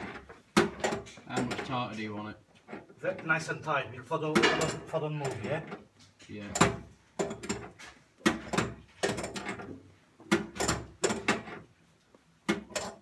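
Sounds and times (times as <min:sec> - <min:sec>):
knocks of tools on plumbing fittings: 0:00.0 - 0:01.8, 0:04.3 - 0:05.8, 0:06.5 - 0:11.6, 0:12.4 - 0:13.0.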